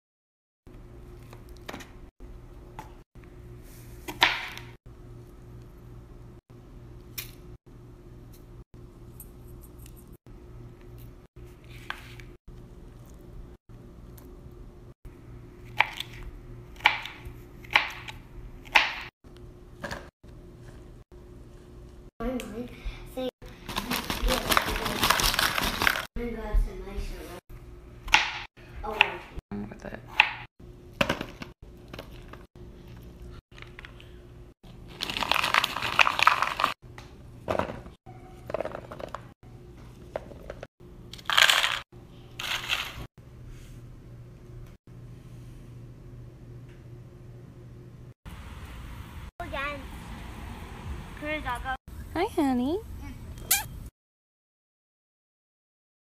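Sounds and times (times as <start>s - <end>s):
foil snack bag crinkling: 23.7s - 26.1s, 34.8s - 36.8s, 41.2s - 41.8s, 42.4s - 43.0s.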